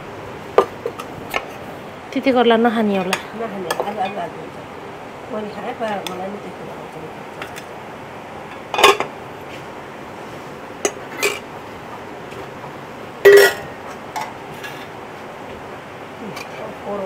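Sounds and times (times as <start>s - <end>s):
metal spoons clinking on plate: 8.7s - 9.1s, 13.3s - 14.8s.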